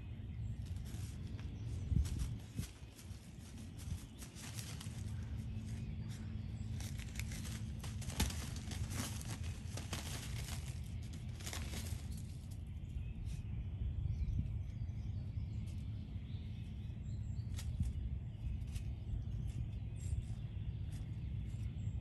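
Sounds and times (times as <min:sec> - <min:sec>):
puppy digging in pine needles: 0:00.2 - 0:13.4.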